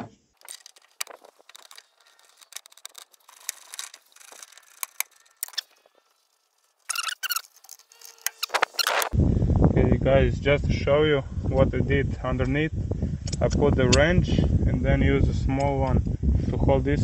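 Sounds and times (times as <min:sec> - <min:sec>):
wrenches clicking and scraping on nut: 0:00.4 - 0:09.2.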